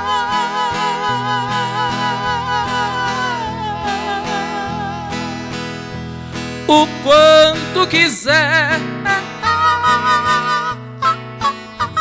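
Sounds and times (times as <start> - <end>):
male voices singing in harmony: 0.0 - 5.6, 6.7 - 10.7
acoustic guitar: 0.0 - 12.0
bass backing: 0.0 - 12.0.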